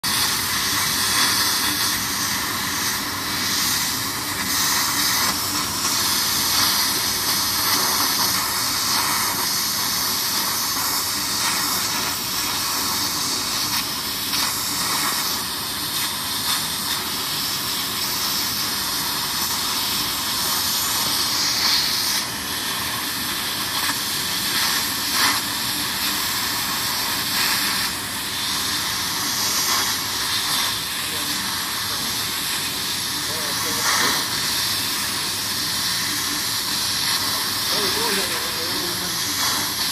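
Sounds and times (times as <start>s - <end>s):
air hissing through nozzle: 0.0s - 39.9s.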